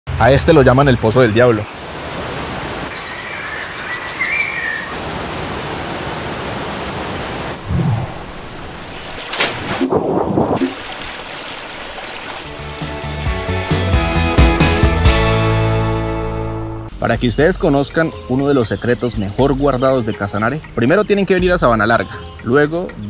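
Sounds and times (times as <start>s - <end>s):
waterfall pouring into pool: 10.6s - 13.4s.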